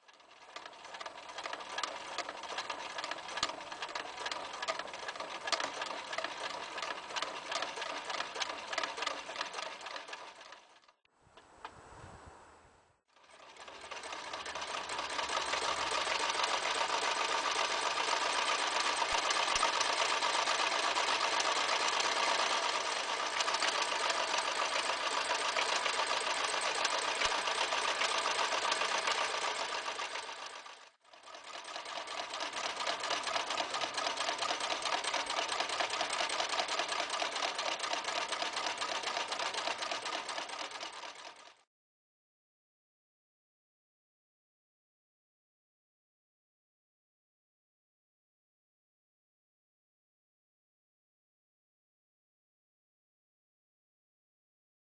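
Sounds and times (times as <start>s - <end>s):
electric sewing machine stitching: 0.0s - 11.0s, 13.1s - 41.7s.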